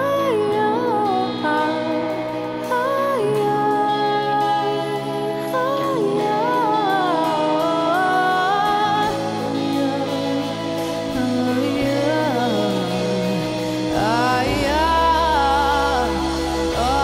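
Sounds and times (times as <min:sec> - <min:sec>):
electropop song: 0:00.0 - 0:17.0
held vocal melody: 0:00.0 - 0:17.0
low bass line: 0:00.0 - 0:17.0.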